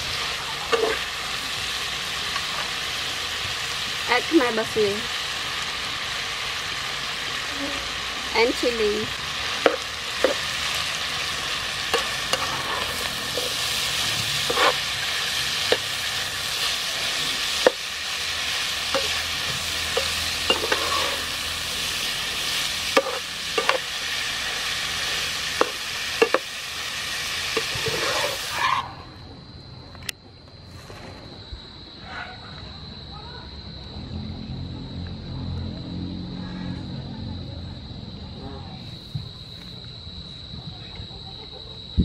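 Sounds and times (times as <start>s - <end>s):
food sizzling in a frying pan: 0.0s - 28.8s
metal spatula scraping a pan: 0.7s - 1.1s, 11.9s - 17.8s, 18.8s - 21.6s, 22.4s - 23.9s, 27.6s - 28.8s.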